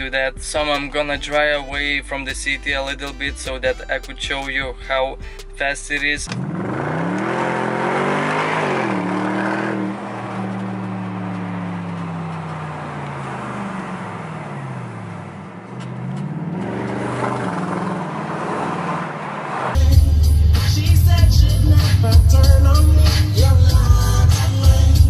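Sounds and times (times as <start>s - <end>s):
car engine revving: 5.9s - 25.0s.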